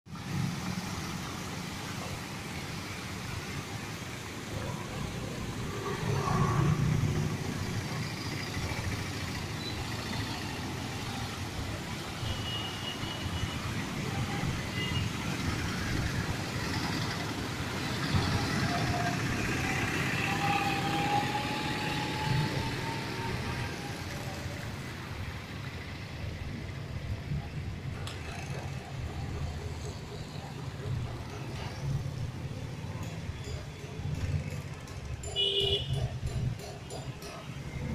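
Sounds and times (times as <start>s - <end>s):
motorcycle engines passing: 15.3s - 26.1s, 26.7s - 37.9s.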